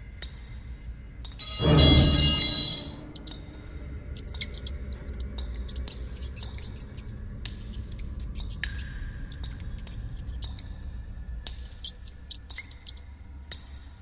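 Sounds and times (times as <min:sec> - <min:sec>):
kitchen utensils crashing to floor: 0:01.4 - 0:03.0.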